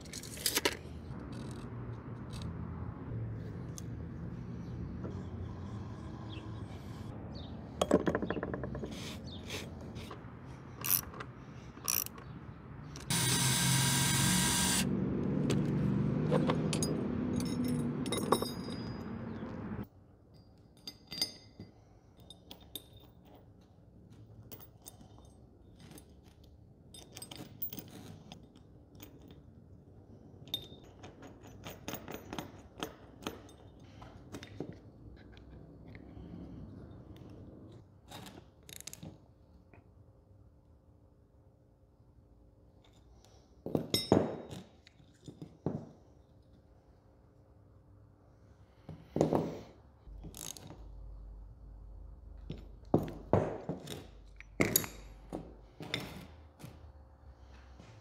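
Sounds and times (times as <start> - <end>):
small metal parts clinking: 0.0 - 2.5, 10.7 - 12.4, 16.3 - 19.4, 20.3 - 29.6, 52.4 - 56.4
tap wrench clicking and scraping: 0.1 - 2.5, 10.1 - 13.1
loud steady mechanical noise: 13.0 - 15.0.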